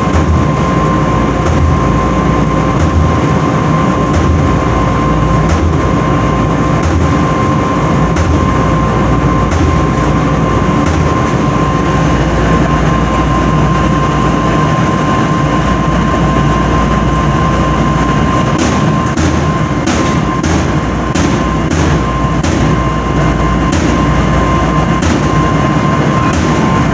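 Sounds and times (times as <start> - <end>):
clothes dryer rumbling: 0.0 - 26.9
whining tone: 0.0 - 26.9.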